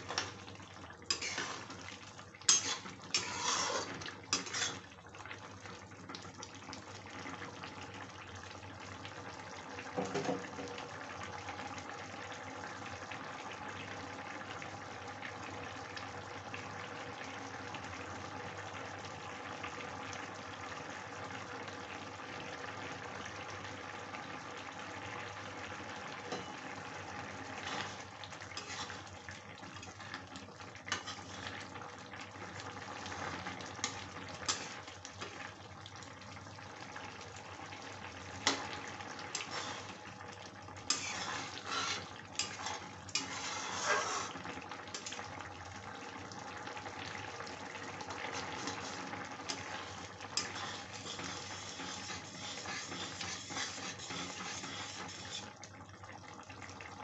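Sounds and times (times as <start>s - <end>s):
curry simmering with bubbling hiss: 0.0s - 57.0s
spatula stirring gravy: 1.1s - 1.8s, 2.4s - 4.9s, 27.6s - 29.2s, 30.9s - 31.6s, 33.1s - 35.4s, 39.3s - 40.0s, 40.9s - 45.1s, 48.2s - 55.6s.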